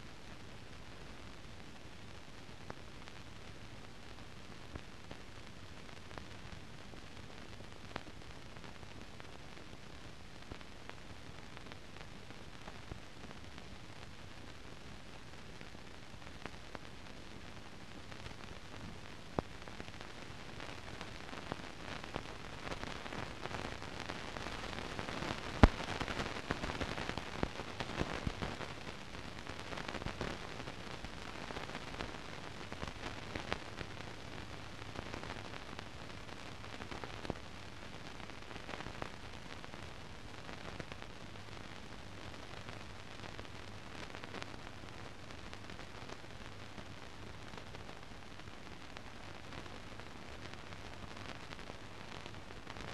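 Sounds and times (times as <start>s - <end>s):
film hiss and crackle: 0.0s - 52.9s
sharp pop: 25.6s - 25.9s.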